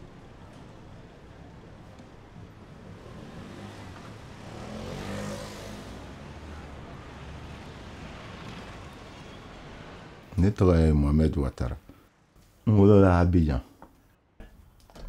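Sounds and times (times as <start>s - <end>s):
street traffic rumbling: 0.0s - 12.3s
vehicle passing close: 2.4s - 10.4s.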